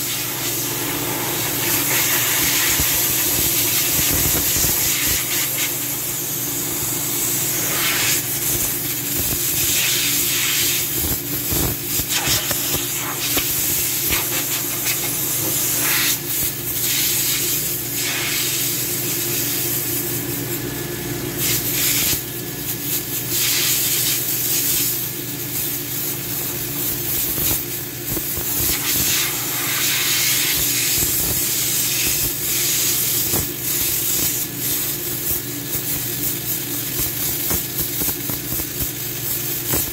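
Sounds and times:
air blow gun hissing: 0:00.0 - 0:19.6, 0:27.1 - 0:36.1.

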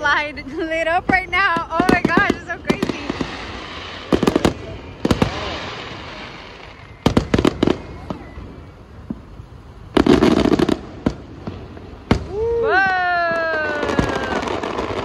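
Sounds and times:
fireworks bangs: 0:00.0 - 0:15.0
fireworks crackling hiss: 0:00.0 - 0:15.0.

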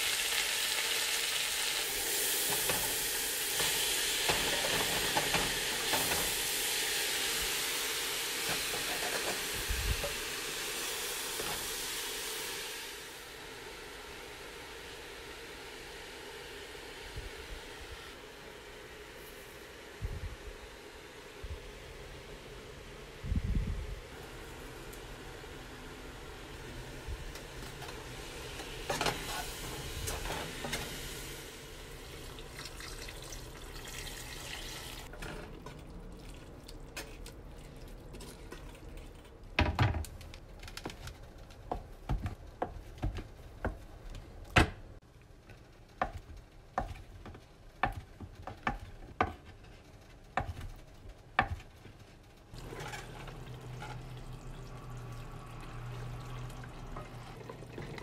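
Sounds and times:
wooden spatula stirring in a pot: 0:45.4 - 0:54.4.

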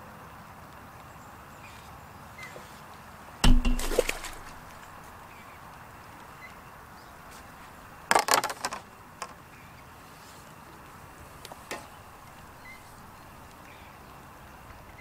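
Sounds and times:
plastic tubs clicking and rattling: 0:08.1 - 0:08.8.

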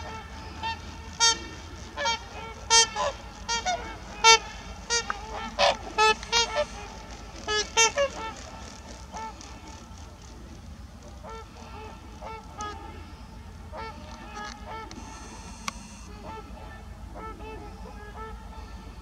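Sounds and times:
swans calling: 0:00.0 - 0:17.0.

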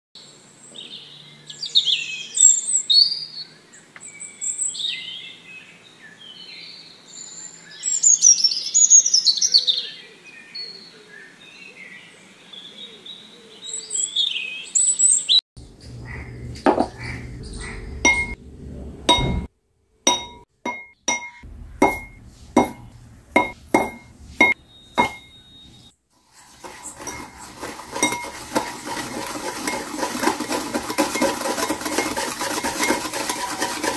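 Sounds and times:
birds chirping: 0:13.6 - 0:18.4, 0:20.1 - 0:26.0
metal whisk beating in glass bowl: 0:18.1 - 0:18.4, 0:20.1 - 0:25.3, 0:26.3 - 0:33.9.

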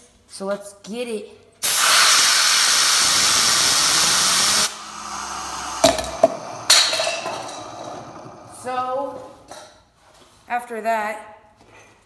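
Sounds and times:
compressed air hissing: 0:01.6 - 0:09.6.

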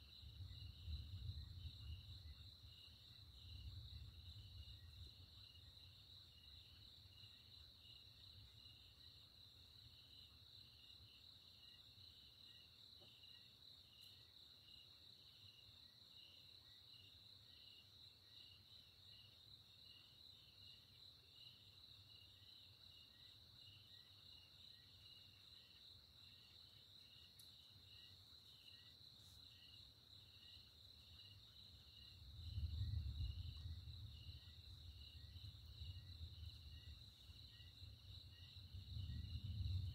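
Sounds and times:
distant thunder rumble: 0:38.6 - 0:39.9.

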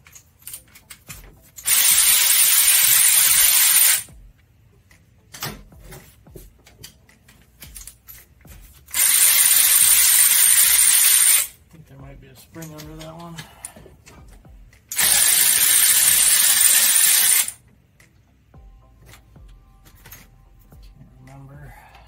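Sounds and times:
powered ratchet spinning bolt: 0:01.6 - 0:04.1, 0:08.9 - 0:11.5, 0:14.9 - 0:17.6.

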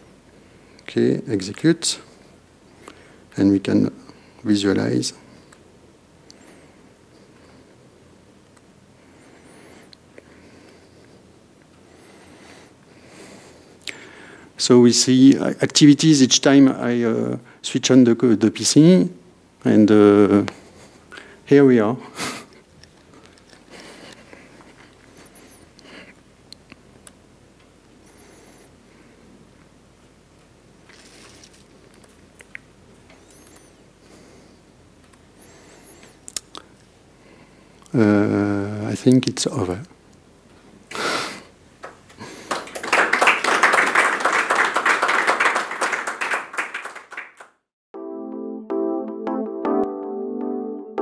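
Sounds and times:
audience applauding: 0:41.8 - 0:47.6.

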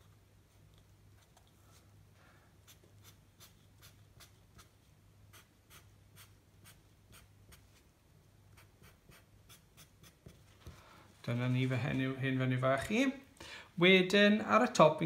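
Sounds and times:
drawing tool scratching on paper: 0:02.6 - 0:07.7.

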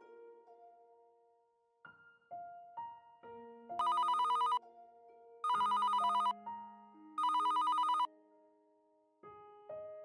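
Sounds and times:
soft piano music: 0:00.0 - 0:10.0
telephone ringing: 0:03.8 - 0:04.6, 0:05.4 - 0:06.4, 0:07.2 - 0:08.1.

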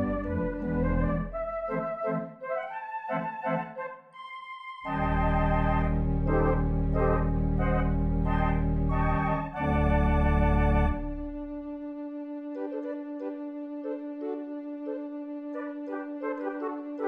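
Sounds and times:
organ chords with deep bass: 0:00.0 - 0:01.8, 0:04.9 - 0:11.7.

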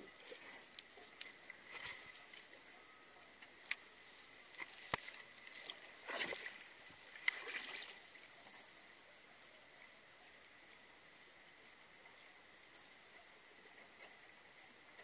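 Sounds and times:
water lapping against boat hull: 0:00.0 - 0:09.4
rustling splash: 0:01.6 - 0:02.5, 0:04.0 - 0:08.3.

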